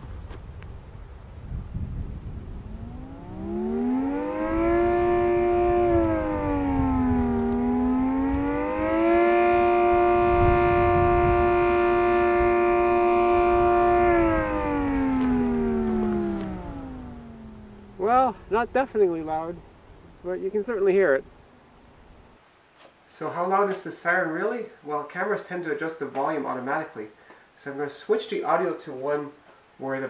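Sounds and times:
dual-tone air raid siren: 0:02.2 - 0:18.7.

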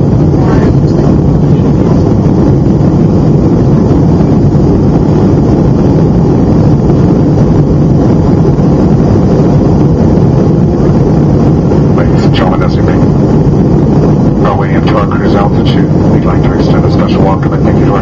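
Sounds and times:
jet engine cabin noise: 0:00.0 - 0:18.0.

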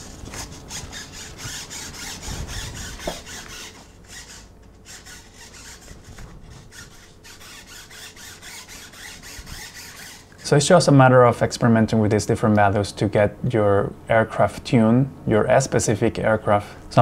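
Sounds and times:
servos whirring in short bursts: 0:00.0 - 0:10.7.

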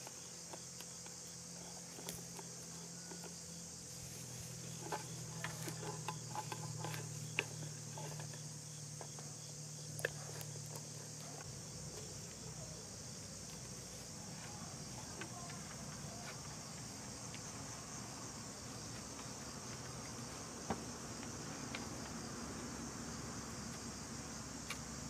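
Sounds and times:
high-pitched insect chorus: 0:00.0 - 0:25.0.

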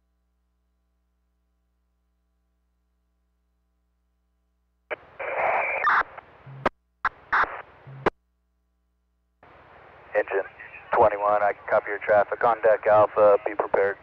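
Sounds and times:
radio static and hiss: 0:04.9 - 0:08.1, 0:09.7 - 0:14.0.

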